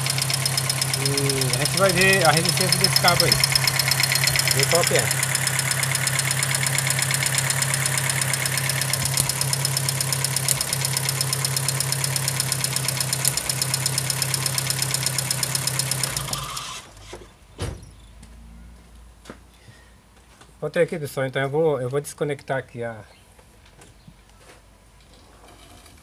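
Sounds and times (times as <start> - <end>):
car engine idling with misfire: 0.0 - 17.0.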